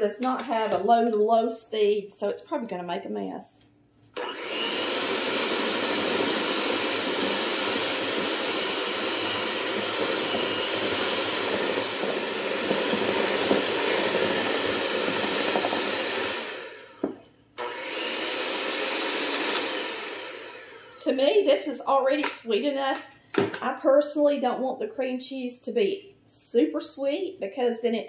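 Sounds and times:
electric hand mixer whining: 4.2 - 21.5.

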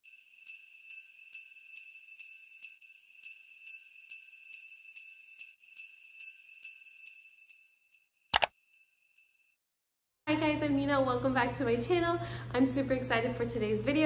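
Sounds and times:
jingle bells shaken: 0.0 - 8.0.

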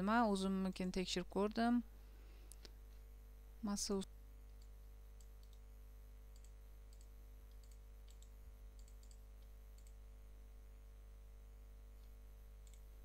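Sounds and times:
steady low hum: 0.0 - 13.0
computer mouse clicks: 4.5 - 5.6, 6.3 - 10.0, 12.0 - 12.9.

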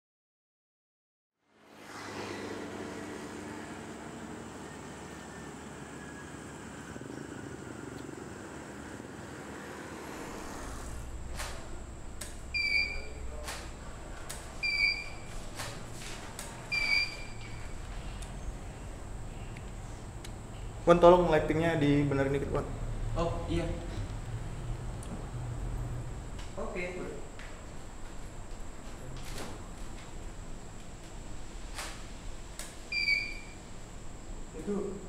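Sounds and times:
low hum: 1.6 - 26.5
short electronic beep: 12.5 - 13.2, 14.6 - 15.3, 16.7 - 17.5.

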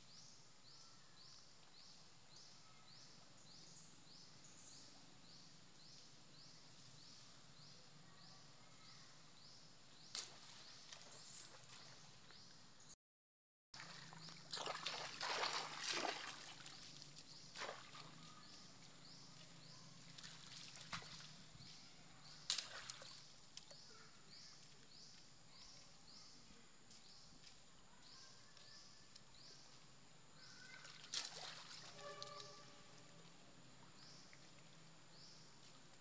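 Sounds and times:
water splashing in puddle: 13.8 - 18.3, 20.2 - 21.4, 22.4 - 23.3, 30.8 - 32.4.

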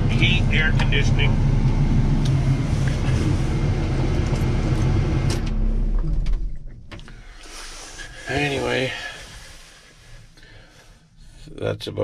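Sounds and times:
diesel engine running: 0.0 - 9.2.

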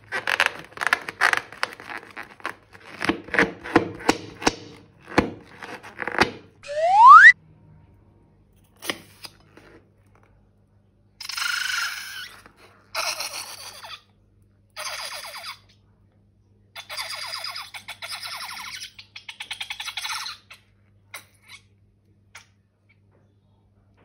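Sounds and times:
rubber balloon sputtering and squeaking: 0.0 - 7.4.

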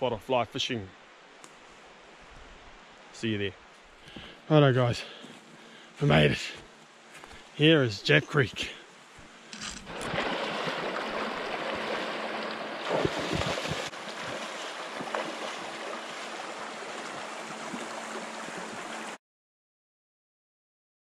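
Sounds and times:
splashes of wading: 9.8 - 19.2.

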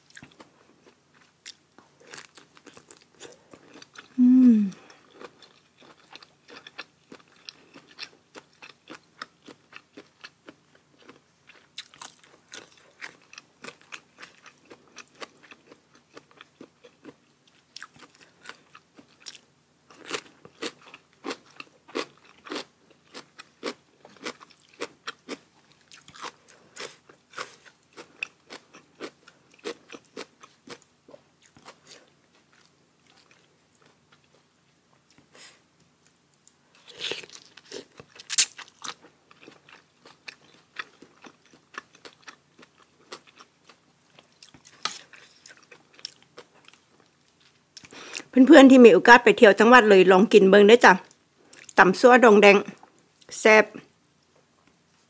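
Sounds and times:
chewing with crisp crunches: 0.0 - 48.4, 51.0 - 51.8
voiced hum falling in pitch: 4.2 - 4.8
wet mouth clicks: 38.3 - 38.6.

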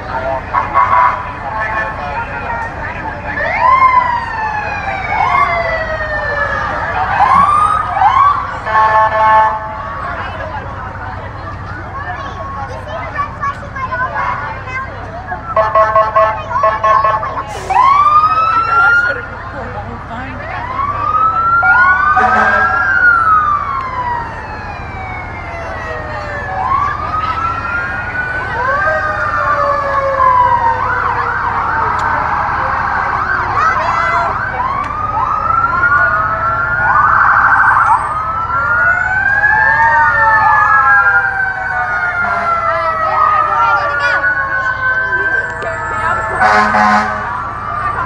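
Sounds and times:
truck engines rumbling: 0.0 - 48.0
siren wailing: 0.1 - 10.7, 15.3 - 19.4, 20.3 - 48.0
siren whoops: 3.3 - 10.0, 15.4 - 19.3, 20.5 - 48.0.

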